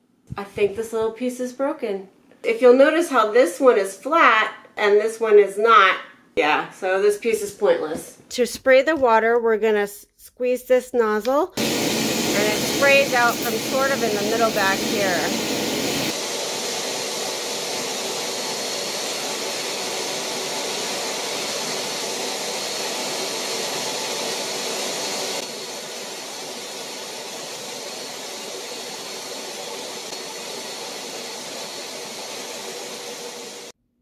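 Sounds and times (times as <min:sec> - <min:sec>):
carpet cleaner motor whirring: 0:11.6 - 0:33.7.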